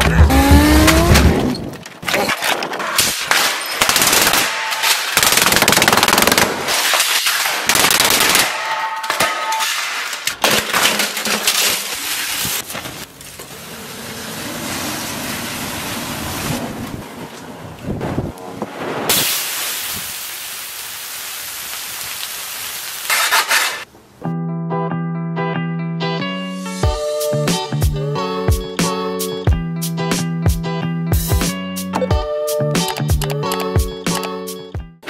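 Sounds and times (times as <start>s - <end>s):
plastic printer being smashed: 9.0s - 13.2s
fire burning: 11.9s - 23.9s
shovel hitting concrete: 23.1s - 23.9s.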